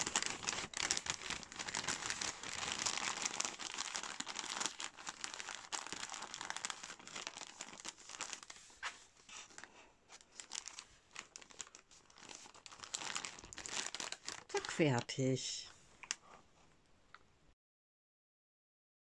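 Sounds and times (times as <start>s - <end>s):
paper bag crinkling: 0.0s - 15.2s.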